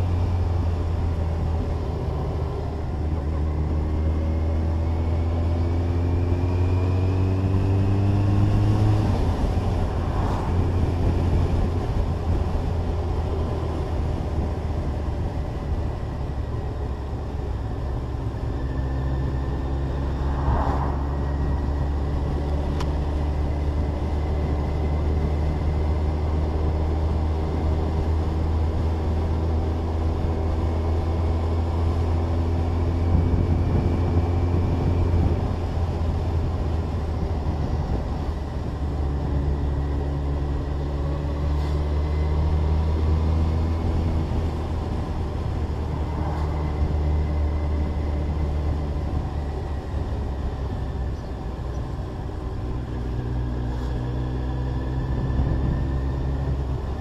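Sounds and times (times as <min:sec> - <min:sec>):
motorcycle engine running: 0:00.0 - 0:57.0
wind rush: 0:07.2 - 0:15.9, 0:18.8 - 0:25.4, 0:42.2 - 0:50.8.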